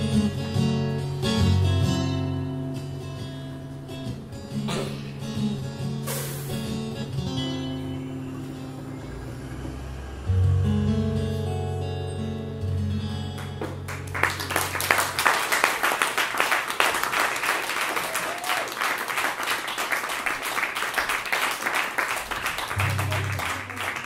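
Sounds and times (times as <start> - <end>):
acoustic guitar chords: 0.0 - 15.2, 22.6 - 24.0
audience clapping: 13.4 - 24.0.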